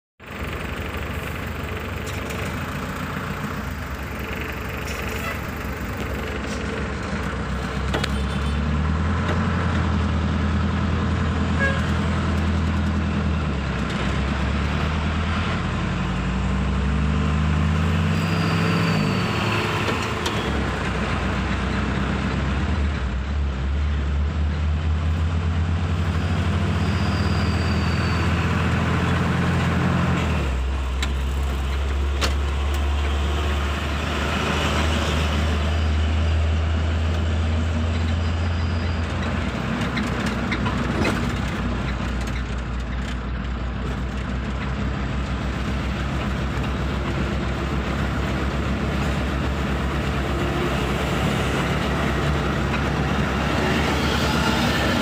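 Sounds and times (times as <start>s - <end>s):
truck diesel engine under load: 0.2s - 55.0s.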